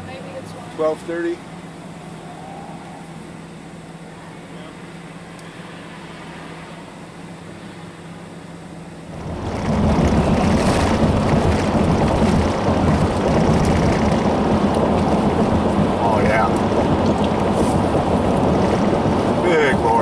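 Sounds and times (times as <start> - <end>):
wind buffeting microphone: 9.1 - 20.0.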